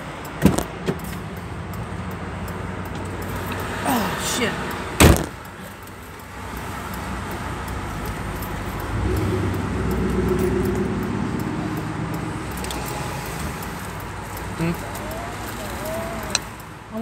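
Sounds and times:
car road noise: 0:00.0 - 0:17.0
low engine hum: 0:06.4 - 0:16.4.

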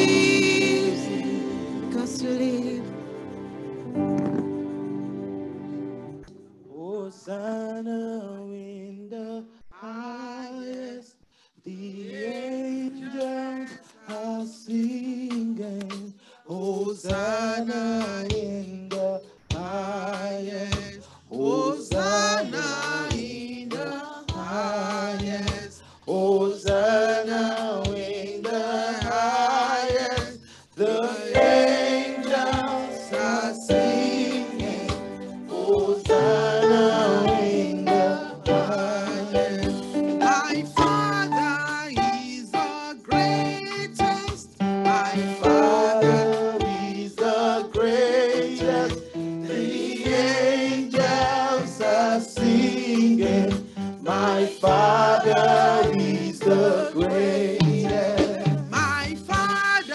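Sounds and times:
worship song singing: 0:00.0 - 0:59.9
steady drum beat: 0:16.9 - 0:25.9, 0:26.5 - 0:59.9.

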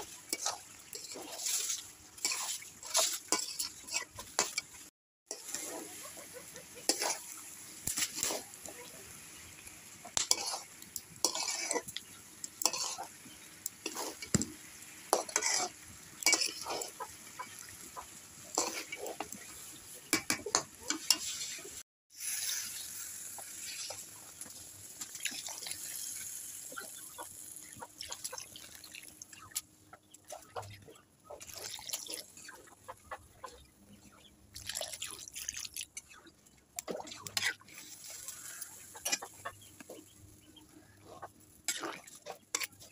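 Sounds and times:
water poured with hiss: 0:00.0 - 0:04.0, 0:06.8 - 0:20.0, 0:21.0 - 0:29.4, 0:36.9 - 0:39.2
light sizzle: 0:00.0 - 0:33.1, 0:34.0 - 0:42.9
metal spatula scraping pan: 0:00.3 - 0:04.7, 0:06.8 - 0:07.3, 0:10.2 - 0:11.9, 0:12.6 - 0:13.1, 0:15.1 - 0:16.9, 0:20.1 - 0:22.7.

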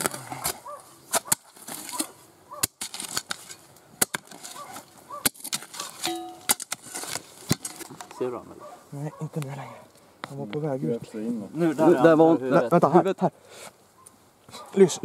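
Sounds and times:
spades chopping into stony soil: 0:00.0 - 0:08.1
muffled dog barking underground: 0:00.6 - 0:02.7, 0:08.1 - 0:09.9, 0:14.5 - 0:15.0.

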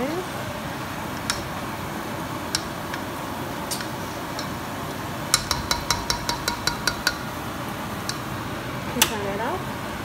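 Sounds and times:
utensil clinking on dish: 0:03.7 - 0:04.6.

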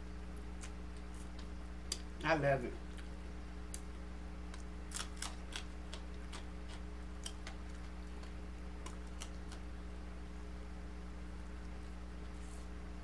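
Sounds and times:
low steady hum: 0:00.0 - 0:13.0
crunching fried fish: 0:04.5 - 0:09.7.

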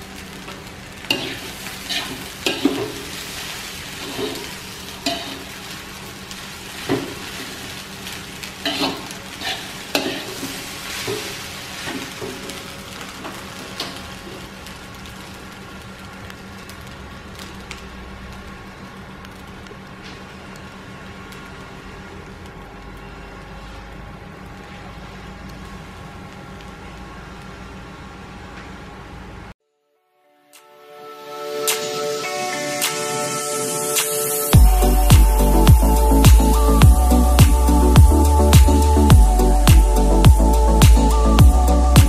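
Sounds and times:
food sizzling in a wok: 0:00.0 - 0:29.4, 0:31.5 - 0:42.0
metal spatula scraping a pan: 0:01.0 - 0:05.6, 0:08.6 - 0:12.6
steady low hum: 0:34.5 - 0:42.0.

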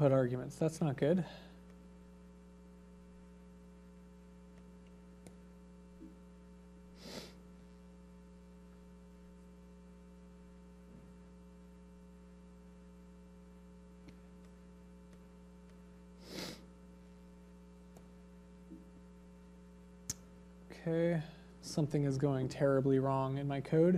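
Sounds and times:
electrical mains hum: 0:00.0 - 0:23.9.

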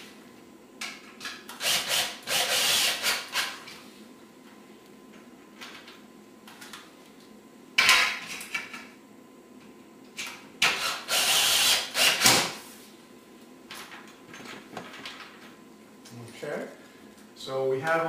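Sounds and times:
cordless screw gun driving screws: 0:01.6 - 0:03.6, 0:10.6 - 0:12.4.

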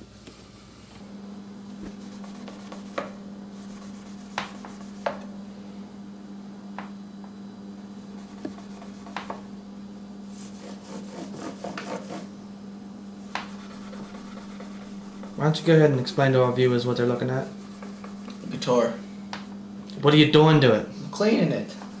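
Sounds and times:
cloth rubbing on guitar: 0:01.7 - 0:05.1, 0:10.3 - 0:12.3, 0:13.4 - 0:15.5.

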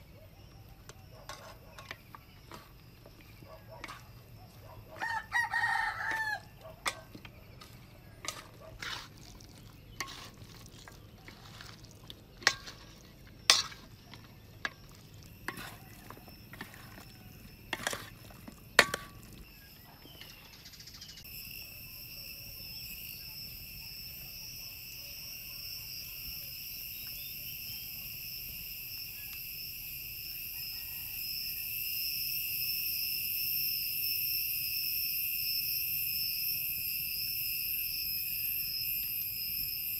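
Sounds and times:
high-pitched insect chorus: 0:00.0 - 0:39.9
rooster crowing: 0:04.9 - 0:07.1, 0:30.4 - 0:31.7.

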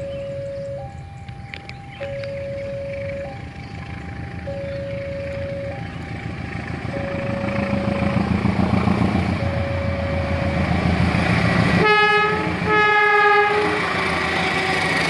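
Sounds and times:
diesel locomotive rumble: 0:00.0 - 0:15.0
locomotive horn blasts: 0:06.8 - 0:08.8, 0:09.4 - 0:10.8, 0:11.8 - 0:15.0.

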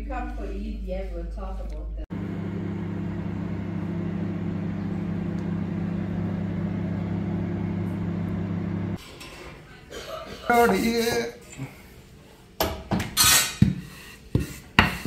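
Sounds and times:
fan oven humming: 0:02.1 - 0:09.0.

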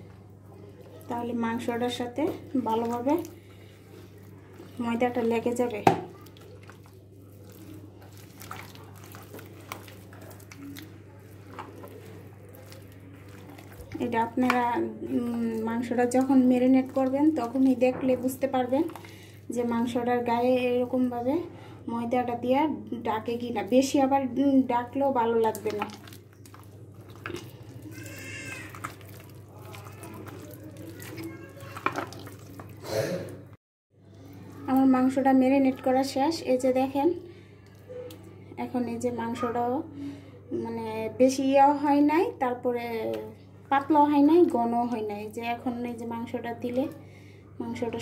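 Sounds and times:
hand squelching marinade: 0:00.0 - 0:21.2, 0:23.2 - 0:32.9.

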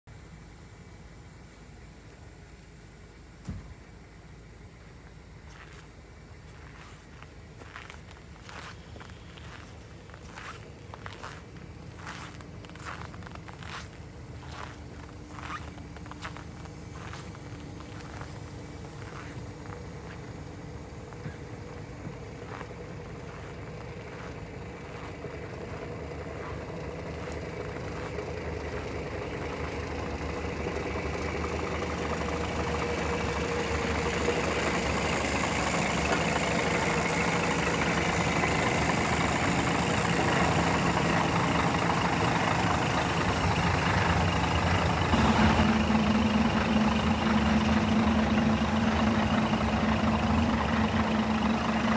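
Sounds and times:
steady higher hum: 0:00.1 - 0:38.4
diesel bus engine idling: 0:00.1 - 0:51.9
footsteps crunching in snow: 0:05.4 - 0:30.0.

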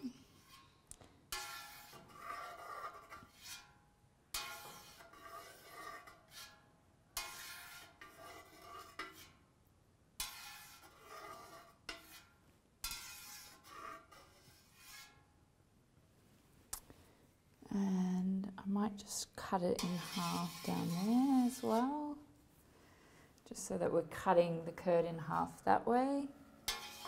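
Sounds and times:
knife scraping metal pot: 0:00.0 - 0:03.8, 0:04.4 - 0:09.4, 0:10.2 - 0:15.3, 0:19.6 - 0:22.2, 0:26.6 - 0:27.0.

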